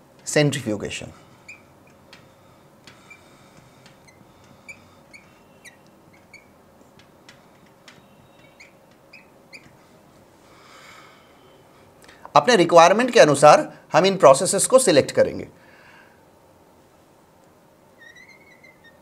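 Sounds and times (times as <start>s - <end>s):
marker squeaking on board: 1.2s - 9.8s, 18.0s - 19.0s
soft marker taps: 1.5s - 9.8s.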